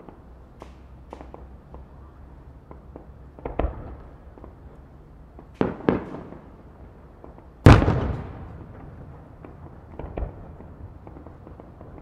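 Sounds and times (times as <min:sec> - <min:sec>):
firework crackles: 0:00.0 - 0:12.0
firework bangs: 0:02.6 - 0:04.7, 0:05.4 - 0:06.6, 0:07.2 - 0:12.0.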